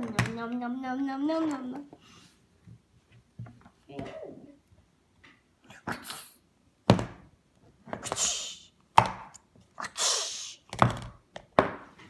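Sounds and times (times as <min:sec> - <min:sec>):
short hissing noises: 0:08.0 - 0:08.8, 0:09.8 - 0:10.7.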